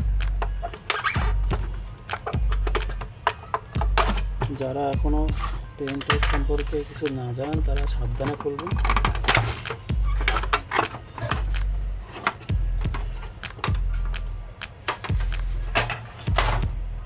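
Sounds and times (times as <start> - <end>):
background music with bass pulse: 0.0 - 17.0
plastic housing clicks and knocks: 0.4 - 4.6, 8.3 - 11.6.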